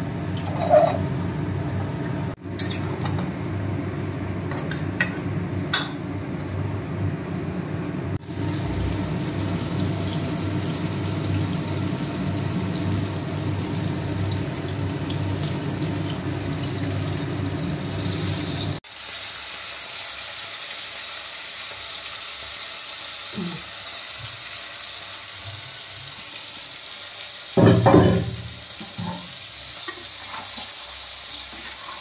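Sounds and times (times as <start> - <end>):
low rumble of gas burner: 0.0 - 18.8
curry simmering and sizzling in pan: 8.2 - 32.0
thin high sizzle: 8.2 - 32.0.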